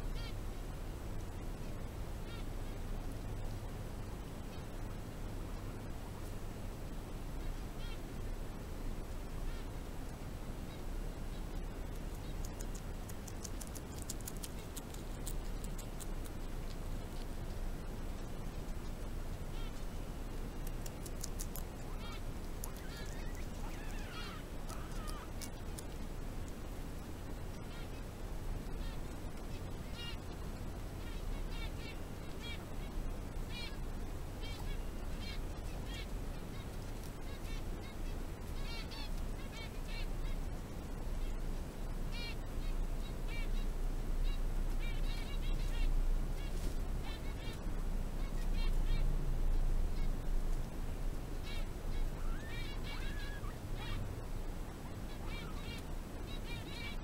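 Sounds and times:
guinea pigs squeaking: 11.8 - 17.3, 20.4 - 26.0, 44.3 - 47.6, 48.2 - 49.1, 51.4 - 54.0, 55.1 - 57.0
chewing clicks: 12.4 - 16.8, 20.6 - 21.7.

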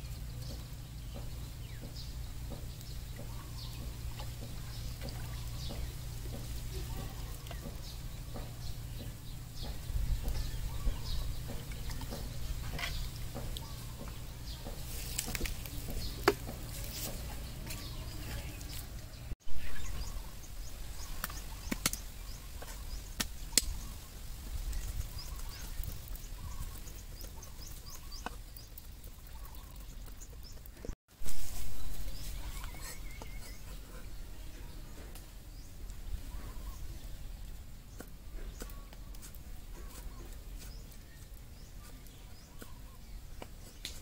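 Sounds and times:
faint bird calls: 0.0 - 14.8, 31.8 - 37.2, 37.9 - 43.8.

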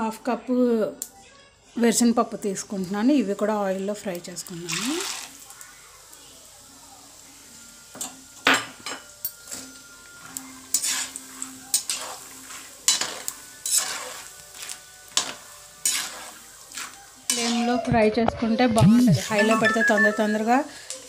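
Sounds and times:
peanuts sizzling in oil: 1.8 - 21.0
metal spoon scraping pan: 10.7 - 17.9.

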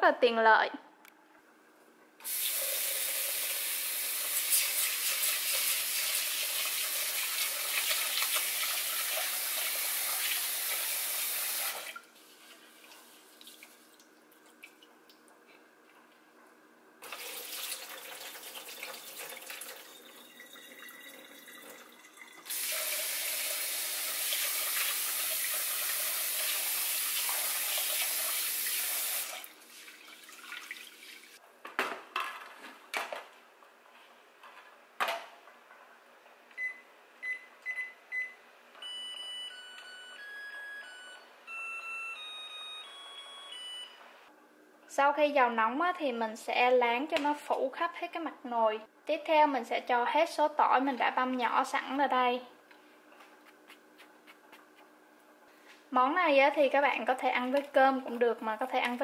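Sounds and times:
faucet running into a pot: 2.2 - 12.0, 17.0 - 31.4.

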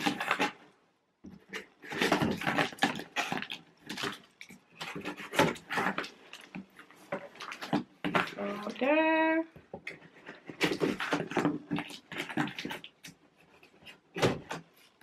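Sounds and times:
cardboard scraping and rustling: 0.0 - 0.6, 1.3 - 8.9, 9.8 - 15.0
packing tape tearing: 0.0 - 0.6, 1.4 - 6.4, 10.0 - 15.0.

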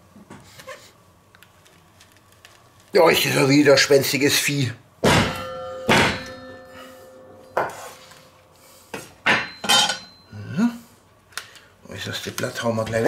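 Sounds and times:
faint metallic ring: 5.3 - 10.4.

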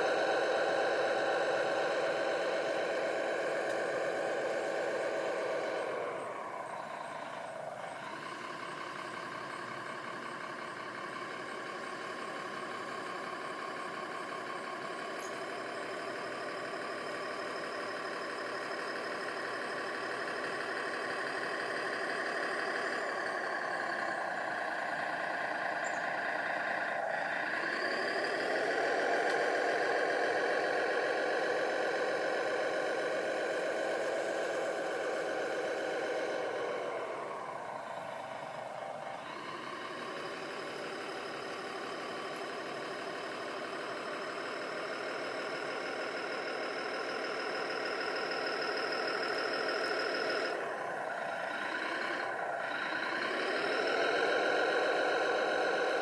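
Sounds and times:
toy bulldozer motor whining: 0.0 - 56.0.

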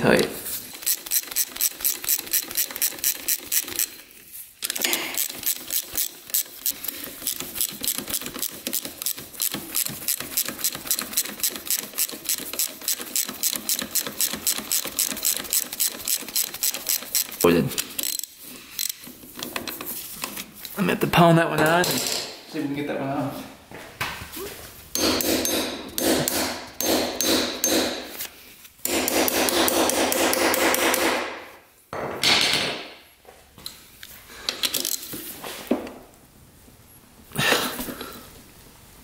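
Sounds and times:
ratchet wrench clicking: 0.7 - 4.0, 4.6 - 19.5.

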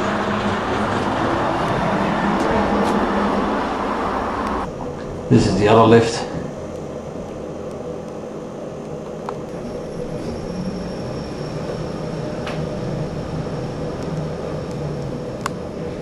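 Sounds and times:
faint high whine: 0.0 - 16.0
lift mechanical hum: 0.0 - 16.0.

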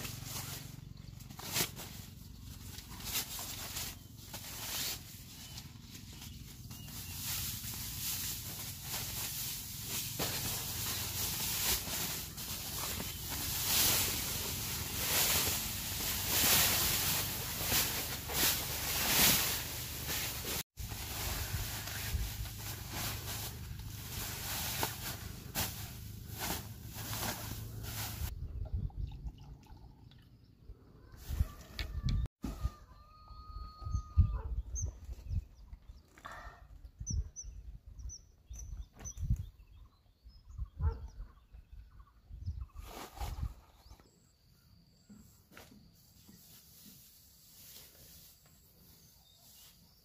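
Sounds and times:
foil insulation mat crinkling: 0.0 - 28.3
rustle: 0.0 - 28.3, 45.1 - 50.0
small birds chirping: 0.1 - 9.5, 10.2 - 18.5, 33.7 - 46.9, 48.1 - 50.0.

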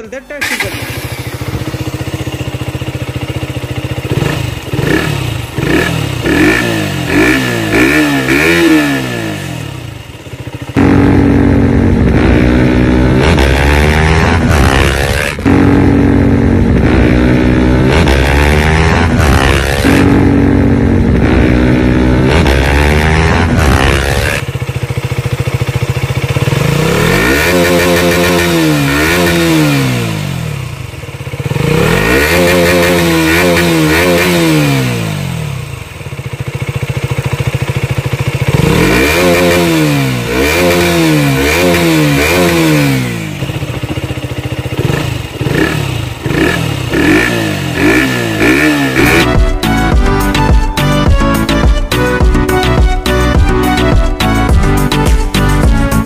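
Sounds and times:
toy motorcycle engine revving: 0.3 - 1.7.

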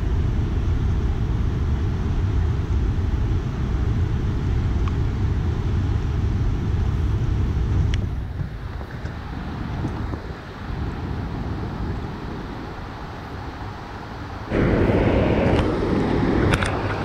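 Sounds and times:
wind buffeting microphone: 0.0 - 17.0
water rushing from spillway: 8.0 - 17.0.

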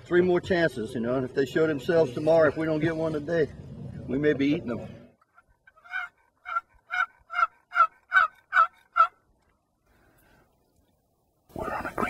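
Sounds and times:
turkey yelping: 5.3 - 9.2.

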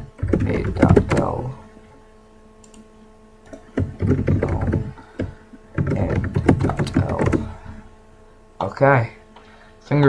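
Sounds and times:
computer keyboard typing: 0.1 - 1.4, 3.4 - 7.7.

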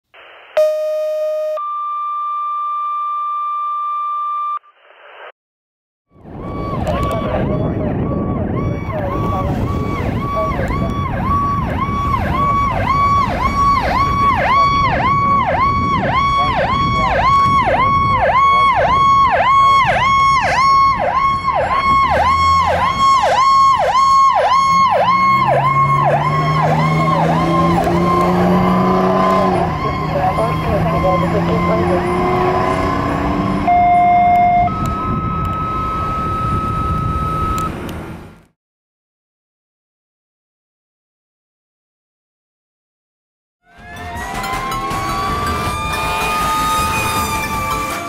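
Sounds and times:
two-tone pager alert: 0.6 - 4.6, 33.7 - 37.7
fire engine siren yelping: 6.1 - 37.9, 43.6 - 48.0
truck engine rumble: 6.1 - 38.5, 43.7 - 48.0.

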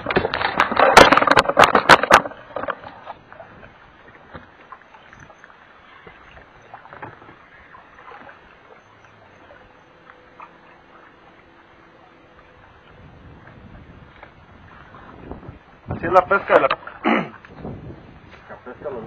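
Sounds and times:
knocks and clatters on boat: 0.0 - 18.6
open-water boat ambience: 0.0 - 19.0.

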